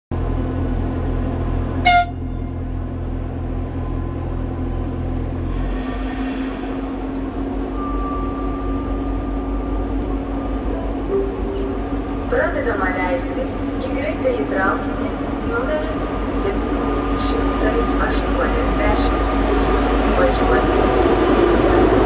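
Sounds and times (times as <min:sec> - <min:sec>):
train engines droning: 0:00.1 - 0:22.0
train horn toot: 0:01.8 - 0:02.7.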